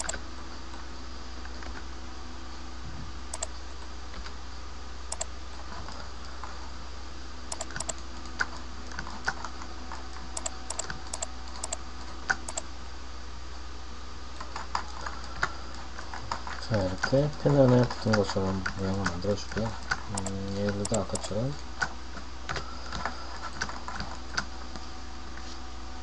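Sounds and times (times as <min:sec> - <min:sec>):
computer keyboard keystrokes: 0:00.0 - 0:00.2, 0:03.3 - 0:03.5, 0:07.5 - 0:09.6, 0:10.2 - 0:12.7, 0:14.4 - 0:24.5
low background hum: 0:00.0 - 0:26.0.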